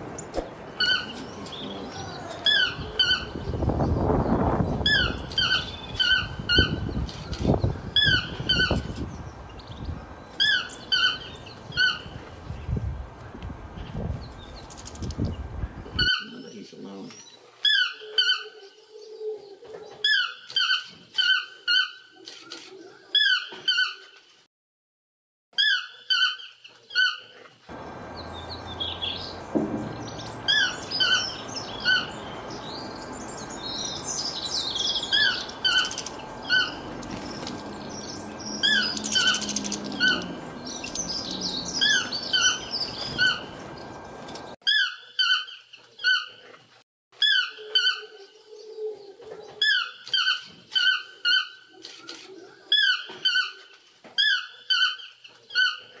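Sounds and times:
birds chirping: 0:00.0 - 0:24.1, 0:25.6 - 0:46.4
toucan calling: 0:27.8 - 0:43.6.

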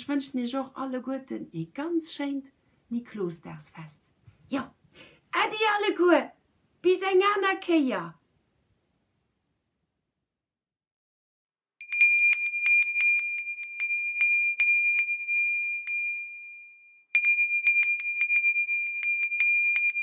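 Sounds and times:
small metal bell ringing: 0:11.8 - 0:20.0.

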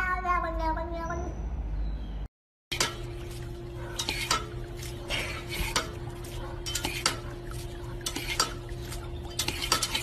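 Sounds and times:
water spurting: 0:02.7 - 0:10.0.

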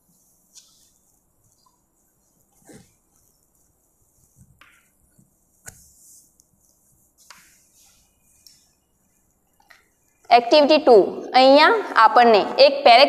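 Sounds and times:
chalk tapping and scratching: 0:00.0 - 0:10.3.

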